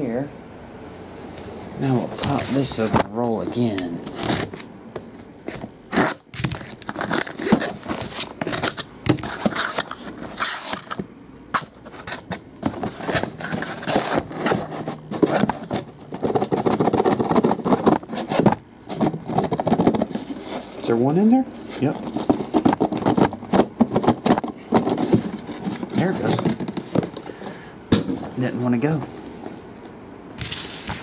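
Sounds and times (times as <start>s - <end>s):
cardboard scraping and sliding: 1.7s - 4.7s, 5.4s - 20.8s, 21.6s - 29.3s, 30.4s - 31.0s
scissors cutting packing tape: 5.9s - 11.0s.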